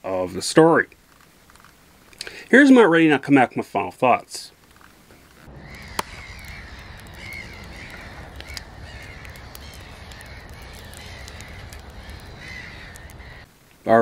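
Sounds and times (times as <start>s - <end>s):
fire rumbling and crackling: 0.9s - 2.4s, 4.6s - 13.8s
sharp crack: 4.6s - 13.5s
harsh bird calls: 5.3s - 13.5s.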